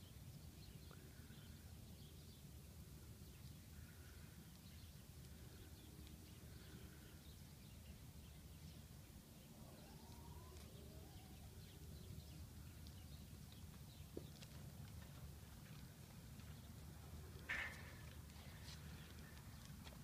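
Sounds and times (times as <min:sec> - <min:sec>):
faint bird chirps: 0:09.4 - 0:13.6.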